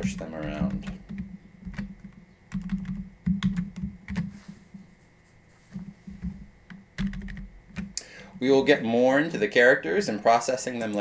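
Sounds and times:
computer keyboard typing: 0.0s - 4.3s, 6.2s - 8.0s.

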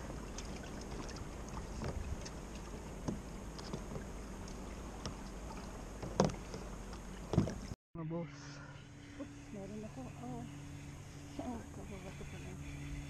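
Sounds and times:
paddle splashing in water: 0.0s - 7.8s.

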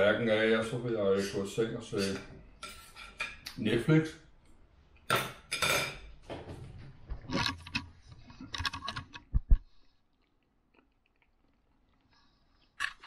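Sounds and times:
knife and fork scraping plate: 2.0s - 3.4s.

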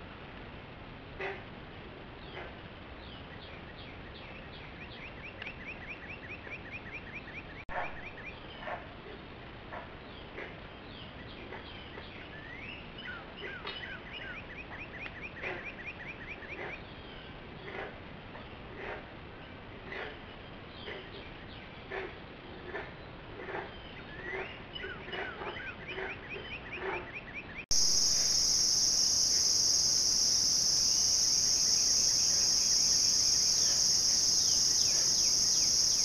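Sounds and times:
bird trilling: 27.7s - 36.0s.

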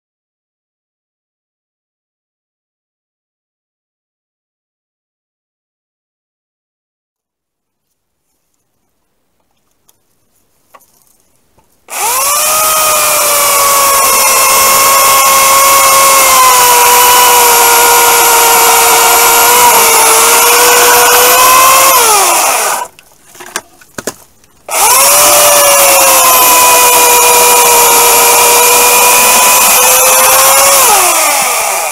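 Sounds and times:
electric chainsaw cutting log: 11.9s - 23.0s, 24.7s - 31.9s.

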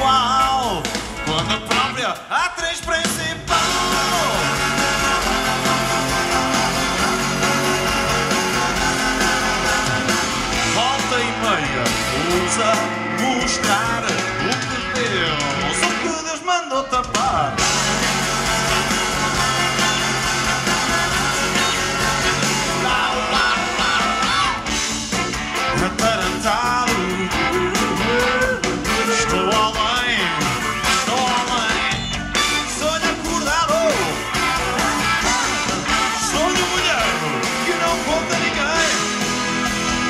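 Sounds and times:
live band playing: 0.0s - 40.0s
lead melody sliding: 3.5s - 16.2s.

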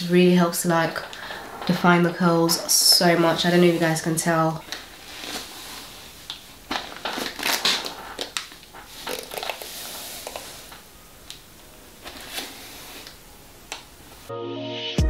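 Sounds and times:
hairbrush brushing through hair: 8.8s - 10.8s, 12.0s - 13.2s.

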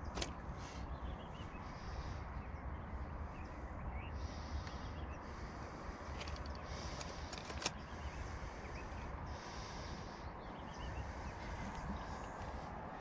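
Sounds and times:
sharp clicks: 6.1s - 8.2s.

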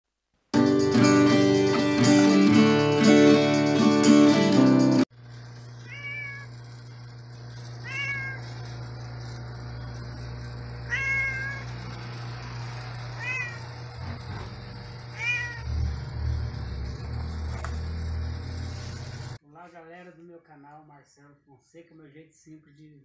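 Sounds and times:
steady low hum: 5.1s - 19.4s
cat meowing: 5.8s - 6.5s, 7.8s - 8.5s, 10.9s - 11.7s, 13.1s - 13.7s, 15.2s - 15.7s.

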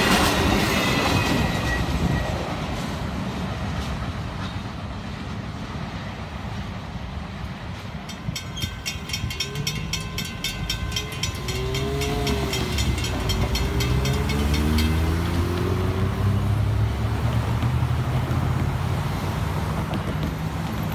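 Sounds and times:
railroad crossing bells ringing: 7.7s - 18.3s
car tyres on road: 9.4s - 20.9s
car engines revving: 11.1s - 20.9s.

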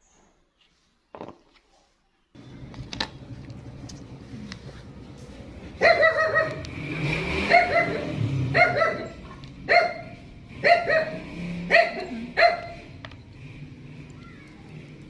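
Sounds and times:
dog barking: 5.8s - 6.6s, 7.4s - 12.8s.

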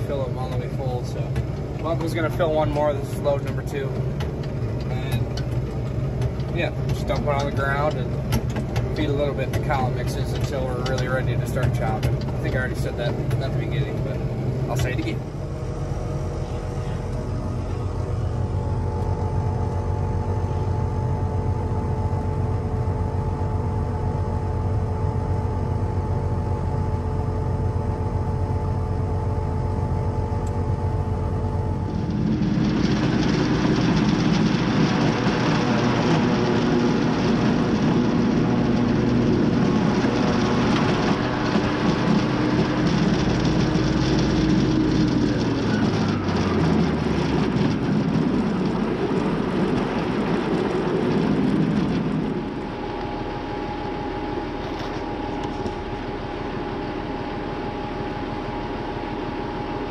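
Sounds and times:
forage harvester chopping: 0.0s - 15.2s
tractor engine running: 0.0s - 59.9s.

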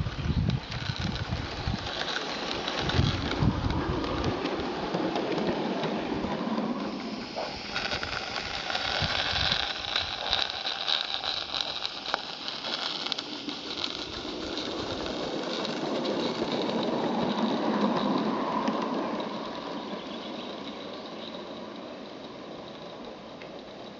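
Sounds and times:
steam hissing: 0.0s - 22.9s
small wheels rattling over rail joints: 0.0s - 23.9s.

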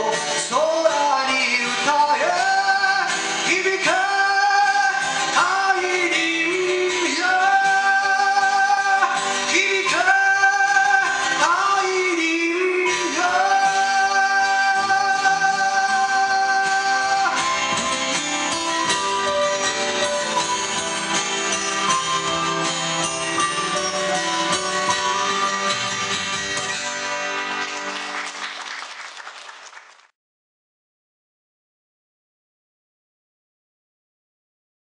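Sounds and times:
man singing long notes: 0.0s - 25.7s
acoustic guitar: 0.0s - 28.6s.

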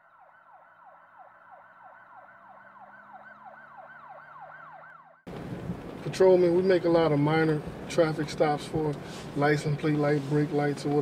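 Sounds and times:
faint siren yelping: 0.0s - 5.2s.

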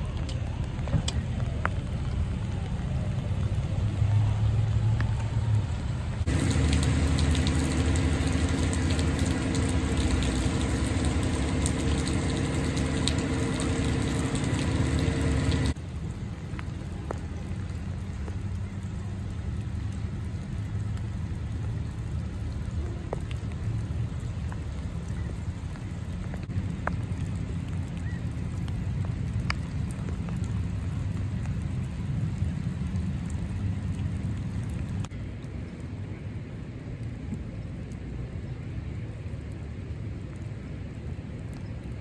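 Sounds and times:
vehicle engine: 0.0s - 15.8s
low rumble: 0.0s - 41.3s
steady rain: 0.0s - 42.0s.

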